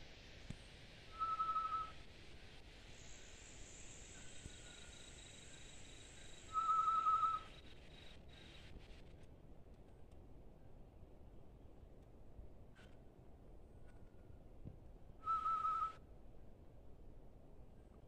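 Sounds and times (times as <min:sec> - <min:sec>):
person whistling bird call: 0:01.1 - 0:02.0, 0:06.5 - 0:07.5, 0:15.2 - 0:16.0.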